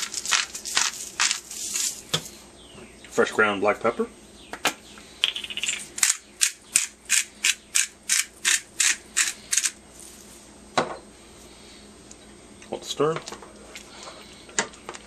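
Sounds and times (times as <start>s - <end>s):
pepper grinder grinding: 0.0s - 2.2s, 5.2s - 9.8s.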